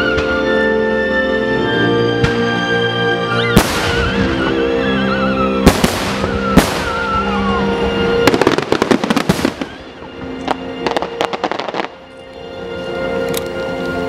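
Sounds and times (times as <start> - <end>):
background music: 0.0 - 14.0
fireworks bangs and crackling: 2.2 - 2.7, 3.4 - 12.0.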